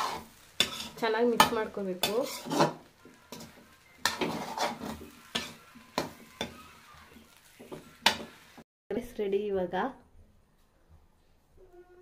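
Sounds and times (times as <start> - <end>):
metal spoon scraping rice in pan: 0.0 - 6.6.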